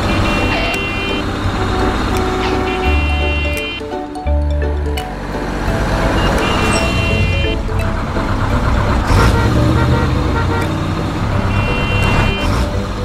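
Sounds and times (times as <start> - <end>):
cartoon engine sound effect: 0.0 - 3.8, 8.7 - 10.7.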